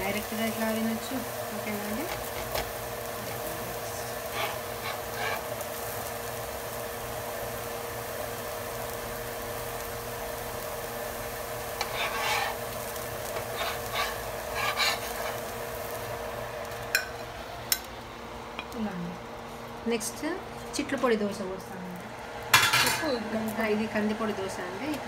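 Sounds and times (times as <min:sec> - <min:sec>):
food sizzling on griddle: 0:00.0 - 0:19.1, 0:22.4 - 0:25.0
metal spatula scraping griddle: 0:04.2 - 0:05.6, 0:11.8 - 0:15.5.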